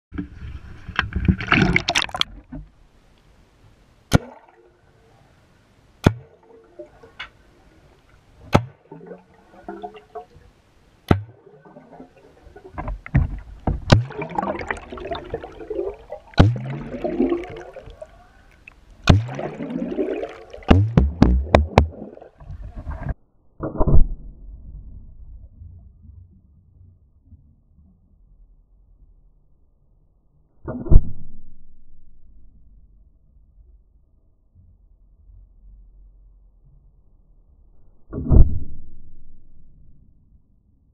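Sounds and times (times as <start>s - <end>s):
paintball gun shots underwater: 4.1s - 4.5s, 6.0s - 6.5s, 8.4s - 9.1s, 11.0s - 11.5s, 12.8s - 18.0s, 18.9s - 24.8s, 30.7s - 31.5s, 38.1s - 39.4s
gurgling gas bubbles: 13.9s - 18.2s, 19.0s - 22.4s.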